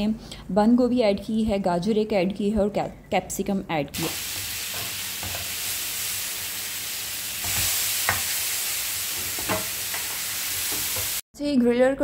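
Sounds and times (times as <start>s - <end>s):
meat sizzling in a grill pan: 4.0s - 11.2s
metal spatula taps and scrapes: 9.3s - 11.1s.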